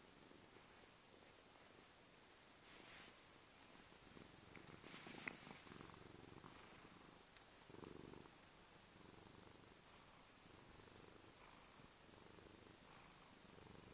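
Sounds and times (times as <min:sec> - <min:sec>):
cat purring: 0:00.0 - 0:02.0, 0:02.6 - 0:13.9.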